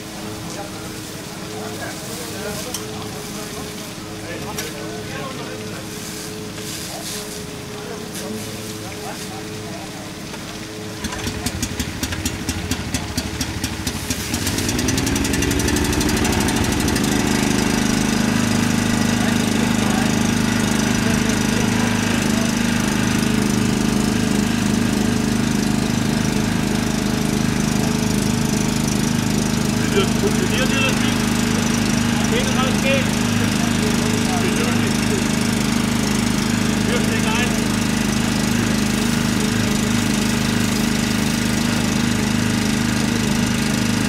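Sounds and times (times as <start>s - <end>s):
engine starting and revving: 11.0s - 44.0s.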